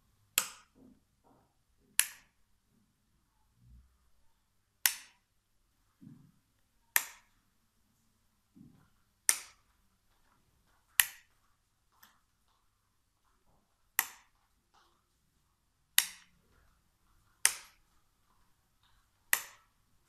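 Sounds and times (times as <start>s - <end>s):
wall switch clicks: 2.0s - 2.4s, 4.8s - 5.2s, 6.9s - 7.3s, 9.2s - 9.6s, 11.0s - 11.3s, 14.0s - 14.4s, 16.0s - 16.3s, 19.3s - 19.7s.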